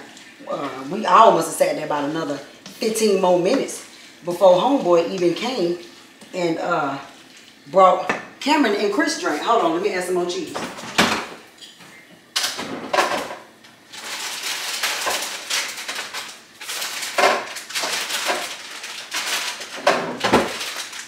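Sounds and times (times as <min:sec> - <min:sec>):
packaging crinkling: 0:12.4 - 0:21.0.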